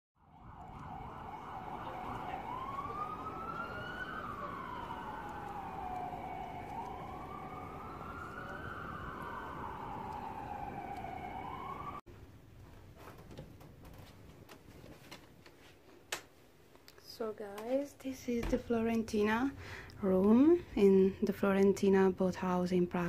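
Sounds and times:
emergency vehicle siren: 0.2s - 12.0s.

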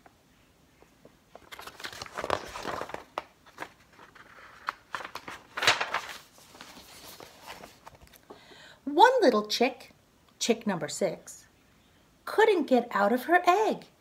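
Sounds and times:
book pages rustling and turning: 1.0s - 8.3s.

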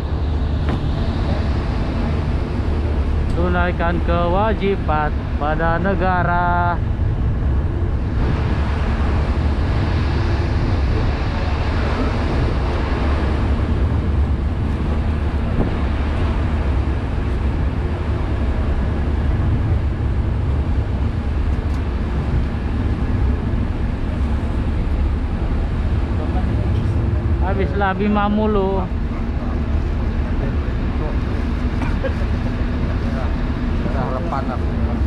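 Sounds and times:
boat engines droning: 0.0s - 35.0s
broad rushing noise: 0.0s - 35.0s.

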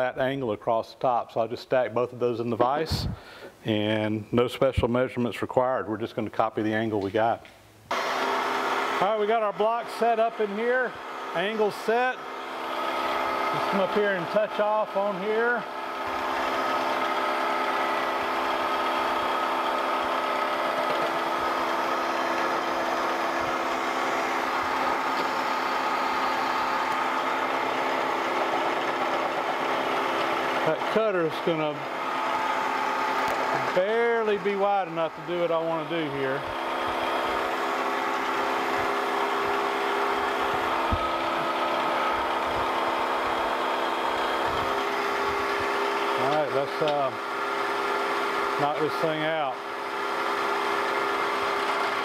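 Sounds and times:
milling machine humming: 7.9s - 52.0s.

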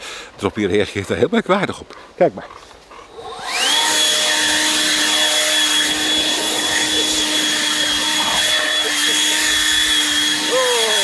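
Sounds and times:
leaf blower running: 3.1s - 11.0s.

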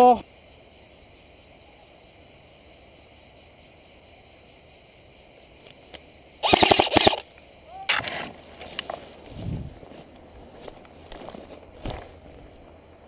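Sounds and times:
insects chirping: 0.0s - 13.0s
airsoft rifle burst: 6.4s - 7.2s.

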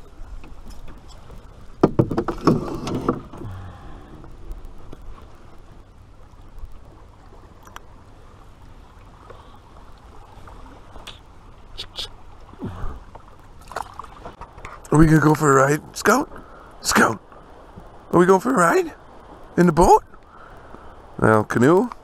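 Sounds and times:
knocks and clatter in canoe: 0.0s - 5.7s, 12.5s - 16.5s
wind: 0.0s - 22.0s.

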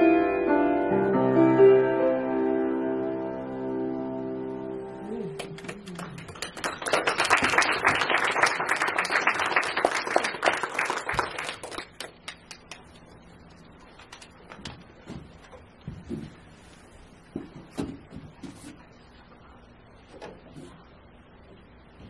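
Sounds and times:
piano chord ringing: 0.0s - 5.6s
audience applauding: 5.4s - 12.8s.

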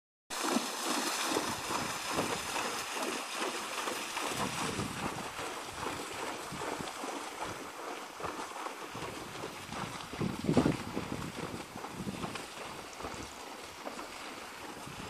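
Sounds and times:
hooves splashing through water: 0.3s - 15.0s.

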